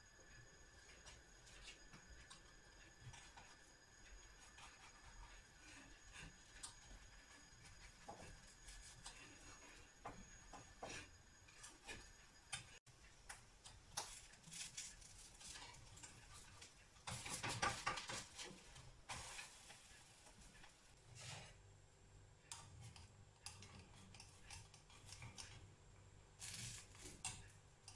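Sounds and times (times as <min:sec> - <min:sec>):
spatula scraping pan: 0:00.3 - 0:12.8, 0:14.1 - 0:21.6.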